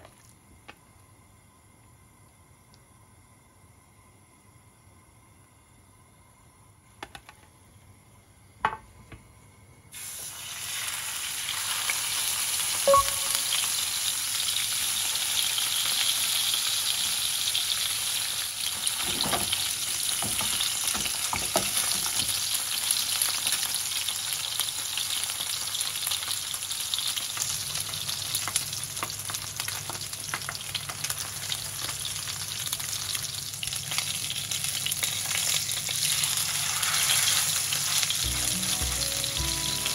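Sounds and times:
oil sizzling in a frying pan: 9.9s - 39.9s.

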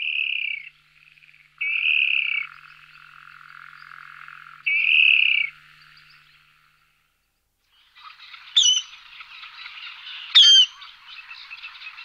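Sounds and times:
animal calling loudly: 10.4s - 10.7s.

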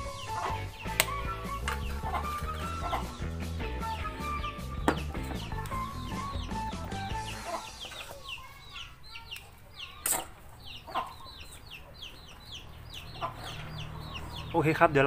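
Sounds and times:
background music: 0.0s - 9.1s
chickens calling: 0.0s - 15.0s.

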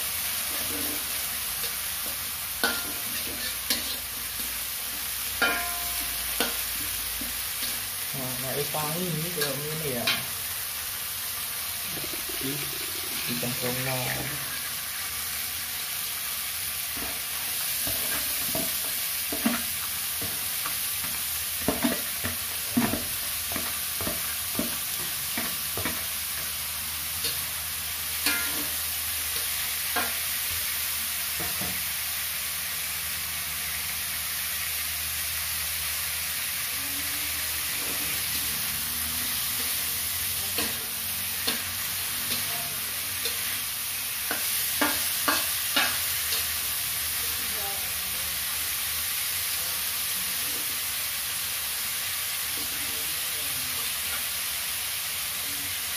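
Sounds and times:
vegetables sizzling in a wok: 0.0s - 55.9s
metal spatula scraping a pan: 0.2s - 8.0s, 27.2s - 30.3s.

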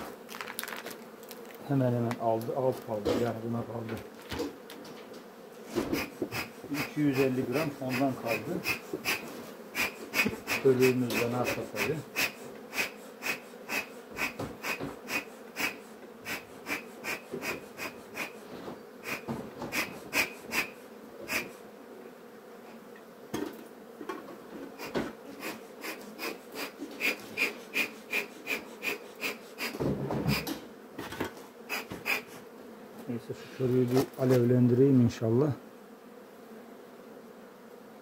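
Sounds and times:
honeybees humming: 0.0s - 38.0s
bellows wheezing puffs: 11.8s - 18.4s, 21.3s - 21.6s, 24.8s - 30.5s.

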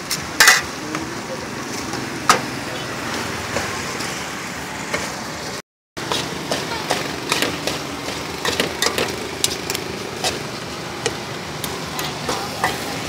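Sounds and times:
steady engine-like hum: 0.3s - 13.0s
metal spoons scraping a wok: 6.0s - 13.0s.

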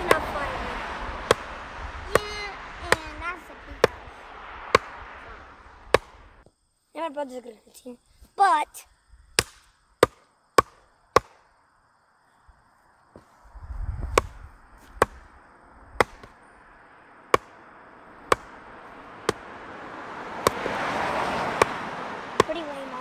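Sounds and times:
sledgehammer striking wooden post: 1.3s - 1.5s, 4.7s - 5.0s, 5.9s - 6.3s, 9.4s - 11.4s, 14.1s - 15.2s, 16.0s - 16.4s, 17.3s - 17.6s, 18.3s - 18.6s, 19.2s - 19.5s, 20.4s - 20.7s, 21.6s - 21.8s.

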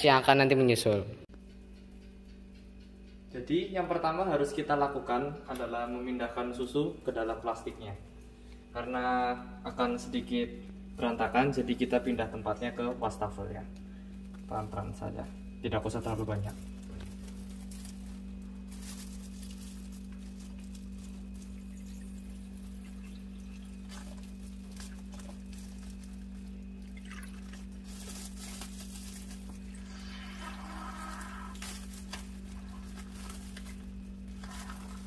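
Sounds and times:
steady low hum: 0.0s - 35.0s
plastic rustling: 14.2s - 35.0s
milk trickling: 21.0s - 28.5s, 32.5s - 35.0s.

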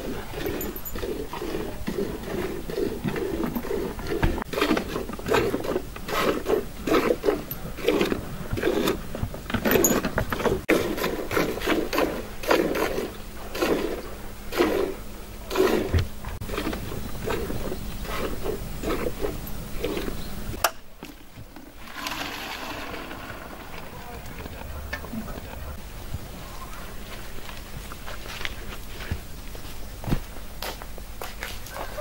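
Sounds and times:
milk squirting into pail: 21.7s - 24.1s.

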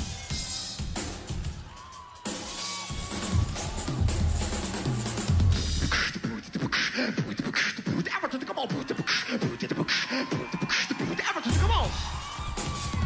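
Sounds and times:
heavy drums and bass: 2.9s - 6.3s
person beatboxing into a microphone: 5.6s - 12.0s.

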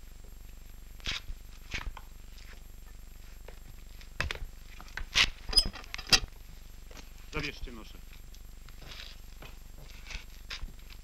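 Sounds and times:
rustles scuffs and soft knocks: 0.1s - 5.1s, 8.1s - 11.0s.

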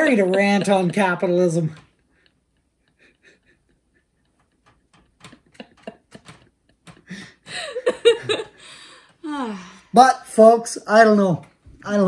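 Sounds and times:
woman laughing: 0.0s - 1.2s, 2.6s - 9.7s.

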